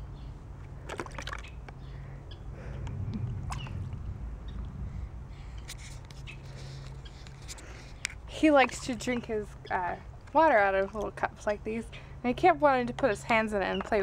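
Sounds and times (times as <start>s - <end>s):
water splashing in plastic bowl: 0.7s - 1.6s.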